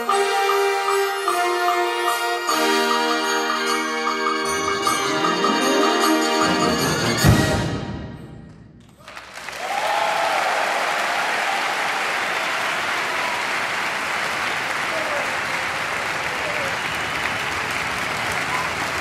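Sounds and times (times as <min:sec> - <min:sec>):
bells ringing: 0:00.0 - 0:07.5
audience applauding: 0:08.8 - 0:19.0.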